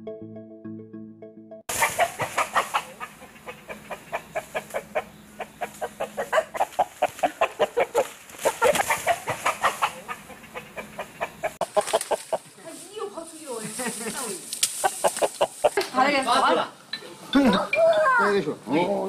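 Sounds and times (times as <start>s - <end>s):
chickens clucking: 1.7s - 12.6s, 14.7s - 15.9s.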